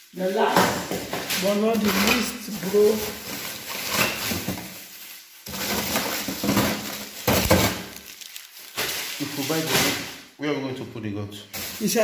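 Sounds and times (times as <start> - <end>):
plastic bags rustling: 0.0 - 10.3, 11.5 - 12.0.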